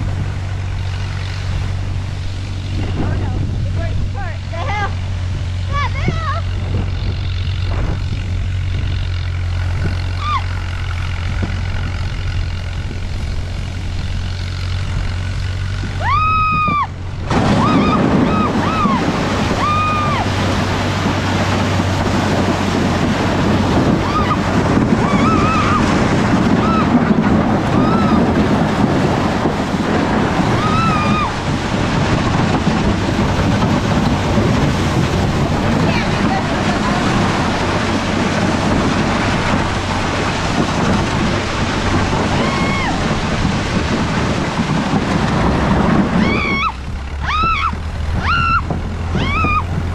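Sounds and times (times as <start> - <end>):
boat hull scraping over snow: 0.0 - 49.9
tractor engine humming: 0.0 - 49.9
short high cries: 10.2 - 10.6.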